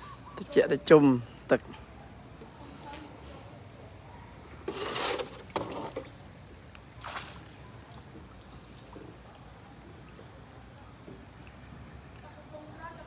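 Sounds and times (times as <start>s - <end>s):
water splashing: 5.2s - 12.3s.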